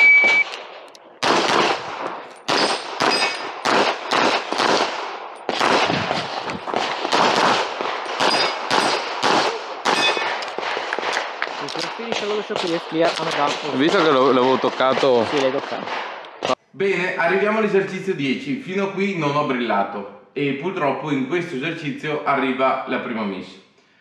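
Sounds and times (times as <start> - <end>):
rapid pistol fire: 0.6 - 16.5.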